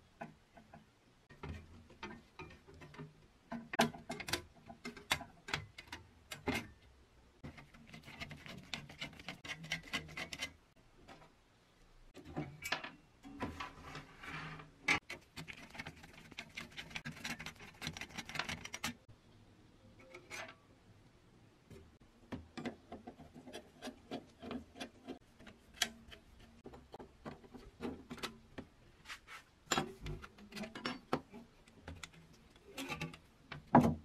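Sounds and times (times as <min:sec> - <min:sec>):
sheet metal parts clinking: 0:29.7 - 0:34.0.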